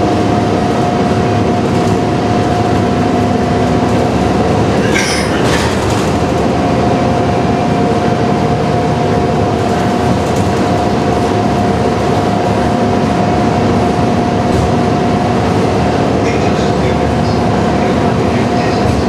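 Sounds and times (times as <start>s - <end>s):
engine and tyre rumble: 0.0s - 19.0s.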